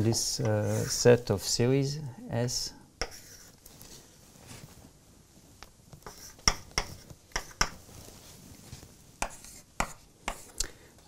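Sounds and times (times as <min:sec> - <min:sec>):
chalk tapping on board: 0:03.0 - 0:03.5, 0:06.0 - 0:07.8, 0:09.2 - 0:10.5
chalk scratching on blackboard: 0:03.0 - 0:03.6, 0:06.0 - 0:07.8, 0:09.2 - 0:10.5.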